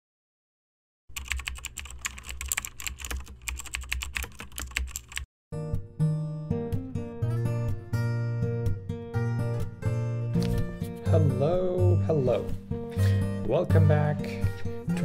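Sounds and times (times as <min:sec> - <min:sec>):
rapid keyboard typing: 0:01.1 - 0:05.3
guitar music: 0:05.6 - 0:15.0.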